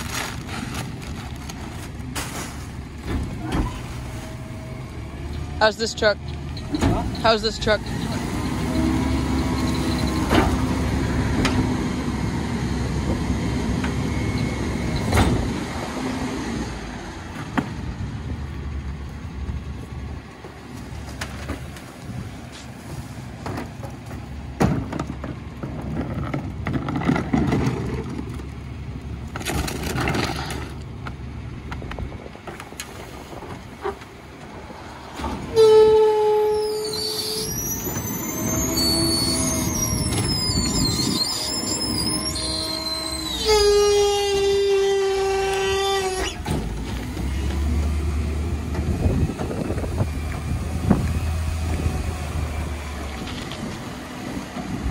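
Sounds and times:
garbage truck running: 0.0 - 54.9
gliding high squeaks: 35.5 - 46.5
loud steady squeal: 35.6 - 46.5.

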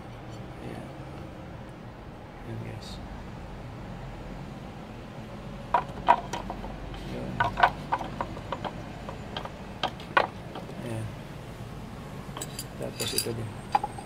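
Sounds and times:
ceramic drawers knocking wooden frame: 5.7 - 10.8.

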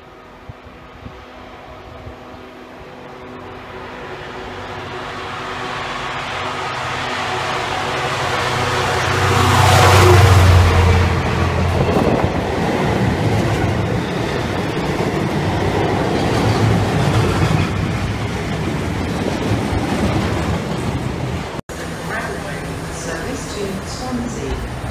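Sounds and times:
diesel locomotive engine: 0.0 - 24.9
freight wagons rolling on rails: 10.8 - 24.9.

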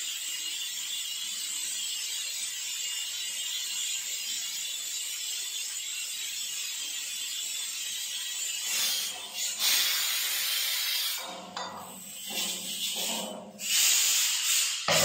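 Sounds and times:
steady hiss: 8.7 - 15.0.

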